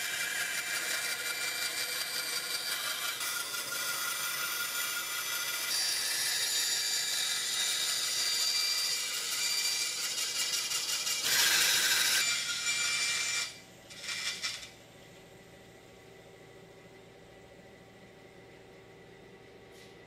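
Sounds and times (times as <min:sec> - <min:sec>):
bandsaw cutting wood: 0:00.0 - 0:14.7.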